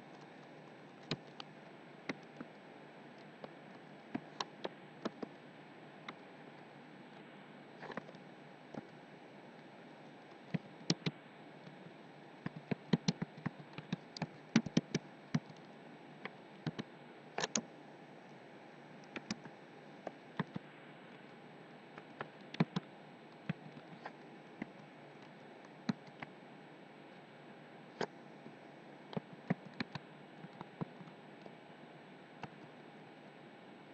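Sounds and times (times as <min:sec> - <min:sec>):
keyboard keystrokes clicking: 0:12.5 - 0:15.6, 0:17.4 - 0:17.6.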